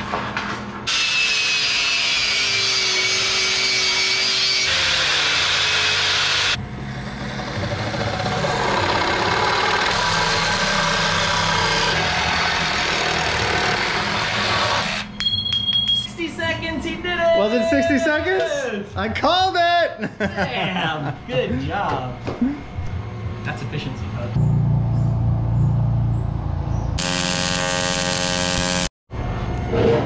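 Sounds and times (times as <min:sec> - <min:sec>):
angle grinder whining: 0:00.9 - 0:15.1, 0:27.0 - 0:28.9
reciprocating saw cutting metal: 0:00.9 - 0:15.1, 0:27.0 - 0:28.9.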